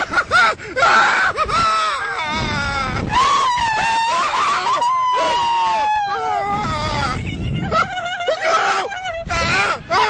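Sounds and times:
people screaming and yelling: 0:00.8 - 0:10.0
long high scream: 0:03.1 - 0:07.0.

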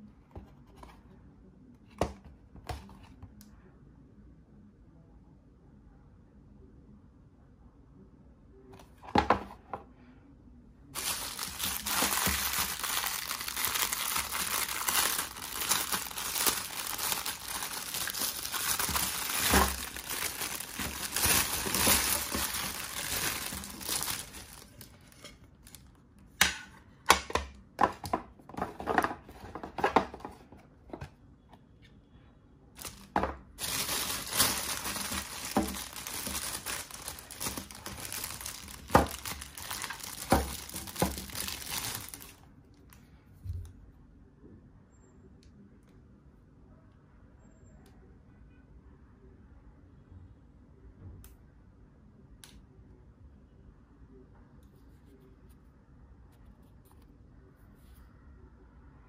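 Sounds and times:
plastic bag crinkling: 0:11.0 - 0:25.9, 0:32.8 - 0:42.4.

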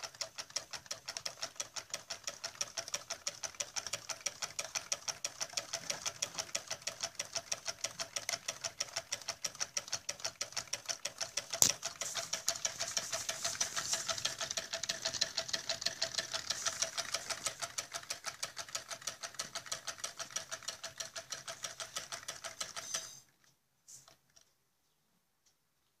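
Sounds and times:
engine mechanism clicking: 0:00.0 - 0:23.0.

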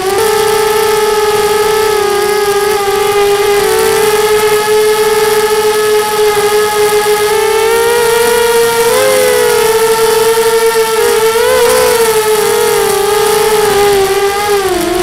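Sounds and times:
quadcopter motors whining: 0:00.0 - 0:15.0.

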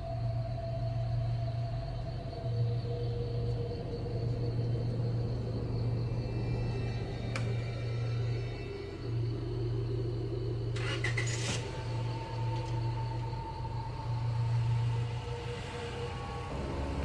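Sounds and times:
low steady rumble: 0:00.0 - 0:17.0
car engine starting and running: 0:10.7 - 0:17.0.

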